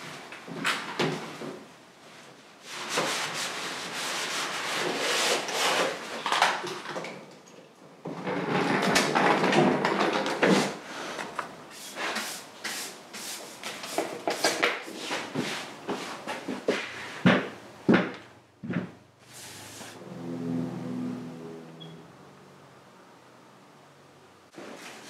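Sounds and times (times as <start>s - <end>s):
hand rubbing and scraping: 19.3s - 20.0s.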